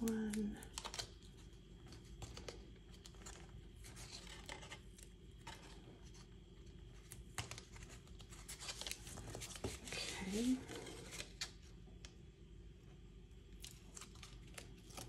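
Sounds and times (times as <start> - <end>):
paper rustling and scratching: 0.0 - 11.7.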